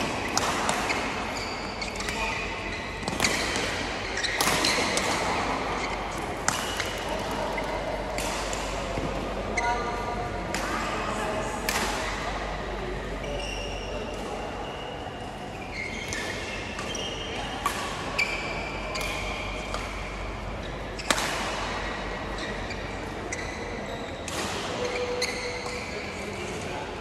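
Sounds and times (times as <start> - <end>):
rackets hitting shuttlecock: 0.0 - 2.3, 3.0 - 9.4, 11.6 - 12.2, 18.9 - 20.1, 21.0 - 22.1
sneakers squeaking on court floor: 0.0 - 8.9, 14.6 - 17.5, 22.3 - 26.0.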